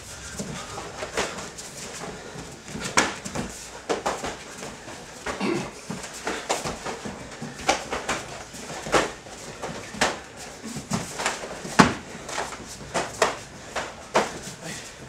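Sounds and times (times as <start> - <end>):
punches and kicks landing: 2.4 - 14.4.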